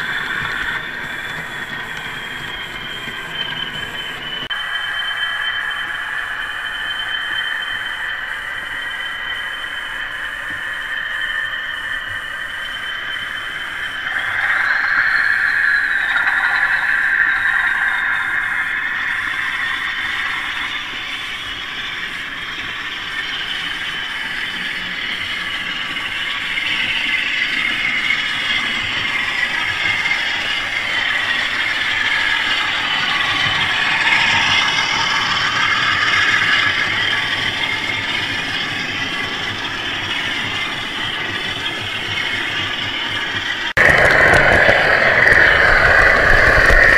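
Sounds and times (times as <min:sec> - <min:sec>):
diesel engine sound: 0:43.7 - 0:46.9.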